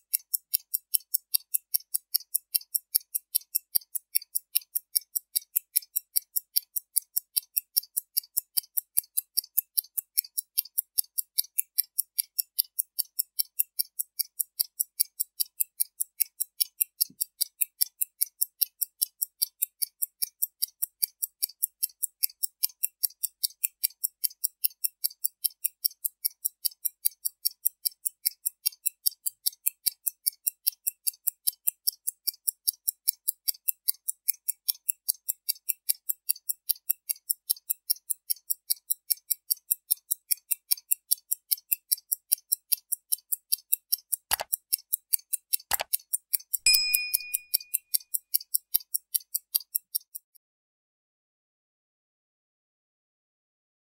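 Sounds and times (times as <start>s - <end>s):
wrist watch ticking: 0.0s - 50.4s.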